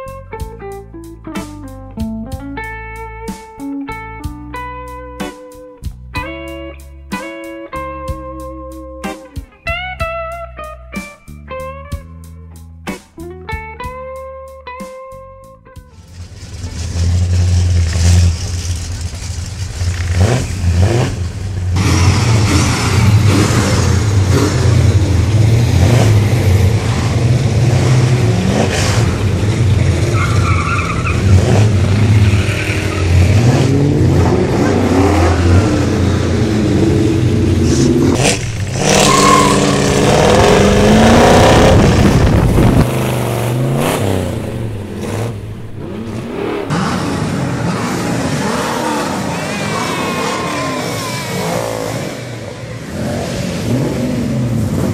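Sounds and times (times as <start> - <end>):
muscle car engines revving: 16.0 - 54.9.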